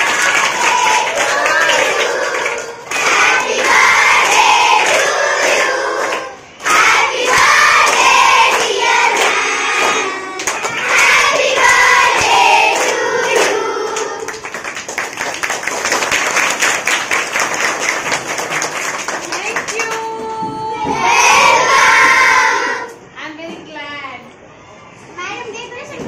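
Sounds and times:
girls singing in chorus: 0.0 - 14.4, 20.7 - 23.0
hands clapping fast: 14.3 - 20.0.

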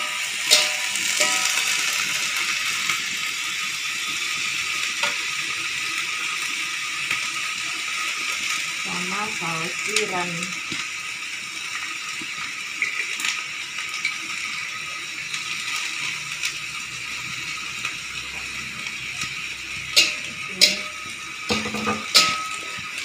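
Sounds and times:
metal spatula clinking on wok: 0.0 - 1.7, 20.0 - 22.8
beans sizzling in a wok: 0.0 - 23.0.

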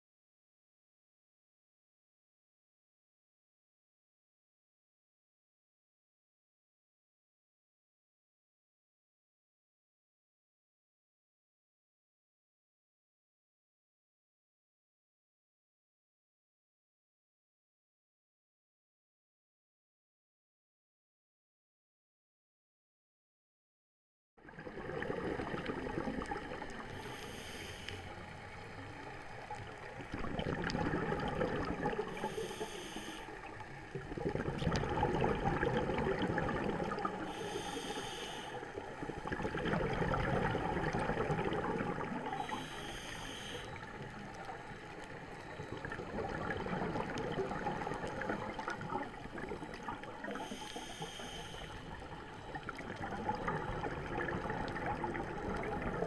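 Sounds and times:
exhaled air bubbling underwater: 24.4 - 56.0
regulator inhalation hiss: 27.0 - 28.2, 32.2 - 33.4, 37.2 - 38.8, 42.3 - 43.8, 50.3 - 52.0.

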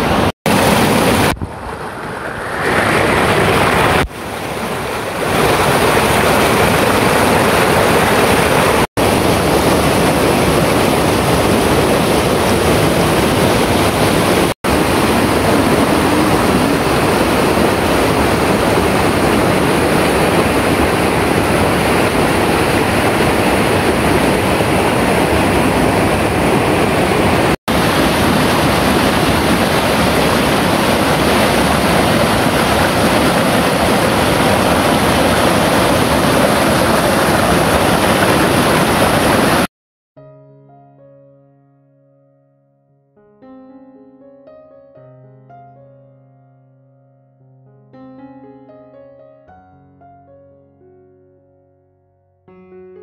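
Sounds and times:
stream rushing over boulders: 0.0 - 39.7.

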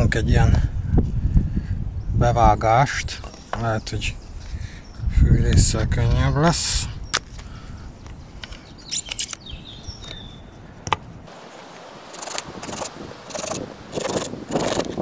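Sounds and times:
pruning saw cutting branch: 12.0 - 15.0.

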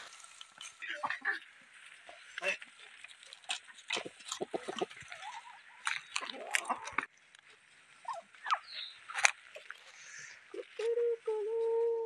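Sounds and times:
clicks and rustles: 2.6 - 7.5
rooster clucking: 3.9 - 5.5.

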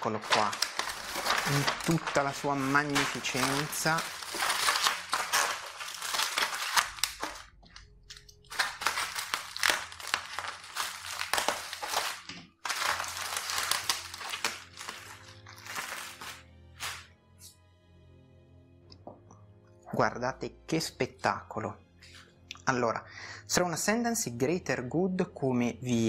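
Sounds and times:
bubble wrap crinkling: 0.0 - 17.1.

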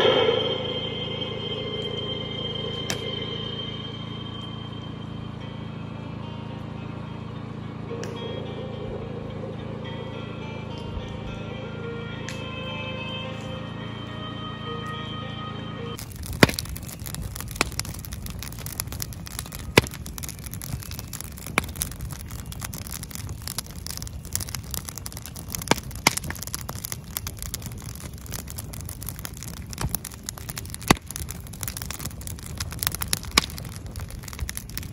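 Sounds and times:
campfire crackling and popping: 1.8 - 5.0, 16.0 - 34.9.

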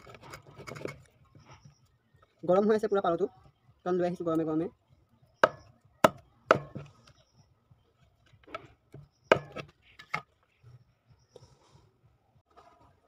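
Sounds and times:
blade chopping on wooden board: 5.4 - 6.9, 9.3 - 9.7.

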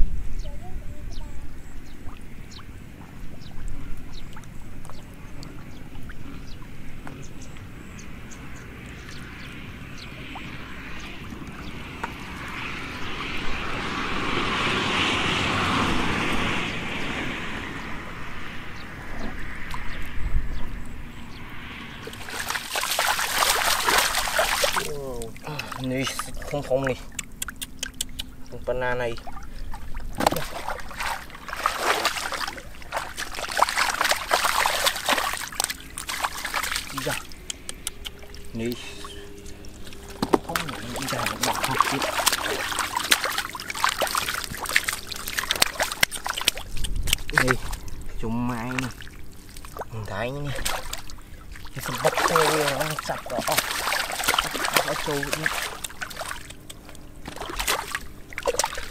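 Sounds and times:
muddy water splashing: 0.6 - 58.9
water drips and plops: 2.0 - 7.7, 22.0 - 38.8, 39.4 - 58.9
hands squelching in wet mud: 22.0 - 28.6, 29.2 - 58.9.

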